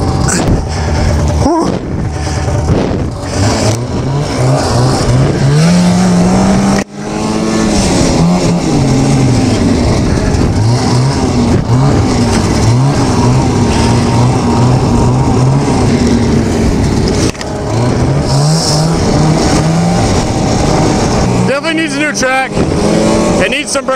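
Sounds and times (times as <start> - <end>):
snowmobile engine revving: 0.0 - 23.9.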